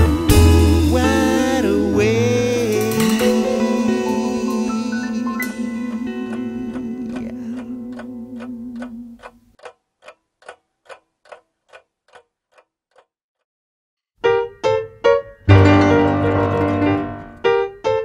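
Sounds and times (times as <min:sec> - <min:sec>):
klezmer band chords: 0:00.0 - 0:09.2, 0:14.3 - 0:17.7
clock ticking: 0:02.9 - 0:13.1.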